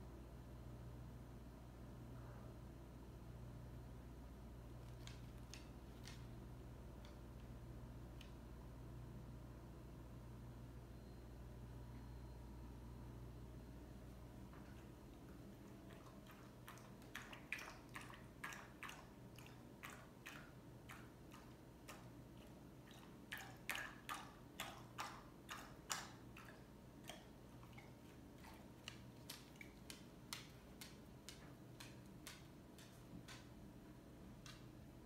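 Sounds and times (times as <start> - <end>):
dog lapping water: 15.6 - 29.9.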